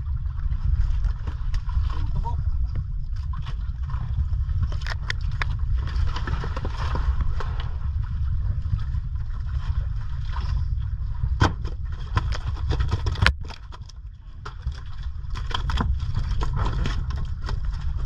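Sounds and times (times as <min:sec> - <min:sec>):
boat engine low rumble: 0:00.0 - 0:18.0
knocks on boat: 0:11.4 - 0:13.4.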